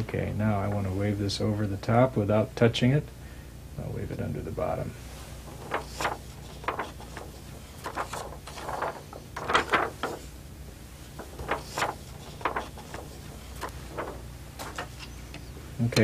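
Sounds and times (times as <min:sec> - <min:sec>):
steady low hum: 0:00.0 - 0:16.0
plastic sheet rustling and crackling: 0:05.1 - 0:15.2.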